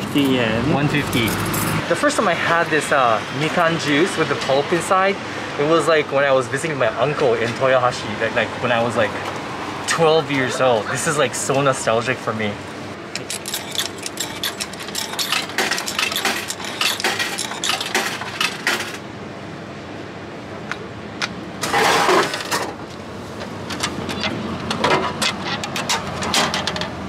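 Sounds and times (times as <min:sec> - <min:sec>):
coins clinking in vending machine: 0:01.1 - 0:01.8, 0:13.1 - 0:19.0.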